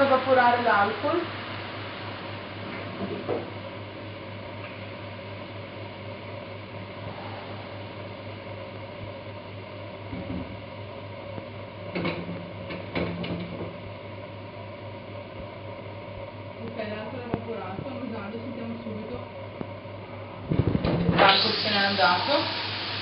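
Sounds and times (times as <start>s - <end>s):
steady low hum: 0.0s - 23.0s
meat sizzling in a pot: 21.2s - 23.0s.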